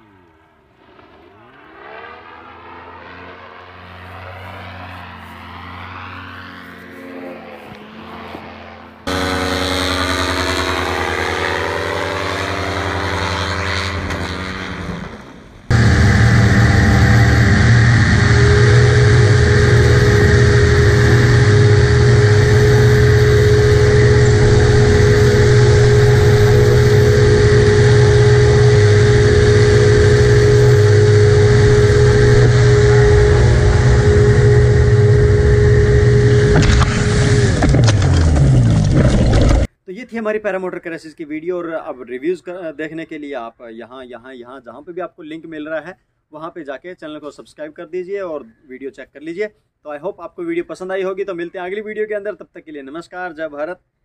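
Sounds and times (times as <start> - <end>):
paramotor engine and propeller: 0.0 - 39.7.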